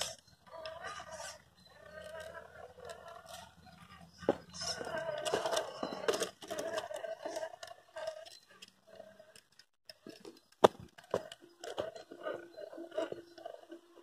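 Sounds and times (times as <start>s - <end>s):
toy motor and gears whining: 0.0s - 14.0s
tyres crunching over stones: 9.9s - 13.4s.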